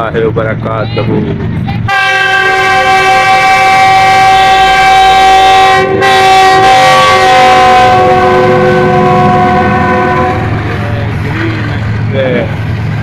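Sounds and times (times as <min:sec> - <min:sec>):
train rumbling past: 0:00.0 - 0:13.0
locomotive air horn blast: 0:01.9 - 0:10.8.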